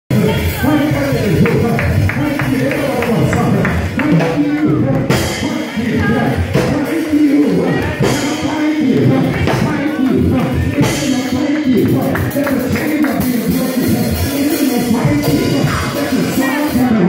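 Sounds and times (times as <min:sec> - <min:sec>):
gospel singing over instruments: 0:00.3 - 0:17.0
hand clapping: 0:01.3 - 0:04.7, 0:09.2 - 0:13.6.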